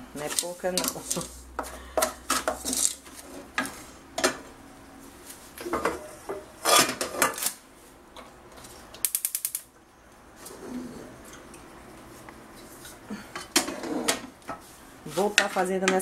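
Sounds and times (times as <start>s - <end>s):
spoon scraping sugar in metal pan: 0.2s - 1.4s.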